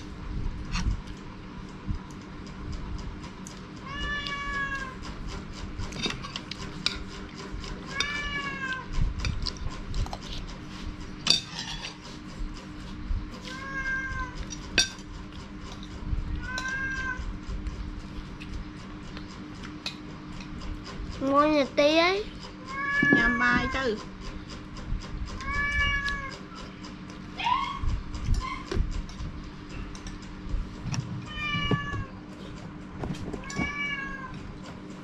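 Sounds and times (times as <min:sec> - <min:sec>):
cat meowing: 0:03.8 - 0:05.0, 0:07.9 - 0:08.9, 0:13.5 - 0:14.4, 0:16.4 - 0:17.3, 0:22.7 - 0:23.6, 0:25.4 - 0:26.3, 0:31.3 - 0:32.2, 0:33.4 - 0:34.4.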